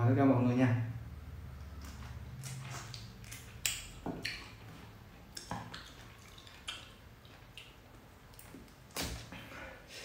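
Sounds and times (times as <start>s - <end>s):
chewing juicy fruit: 1.5s - 9.0s.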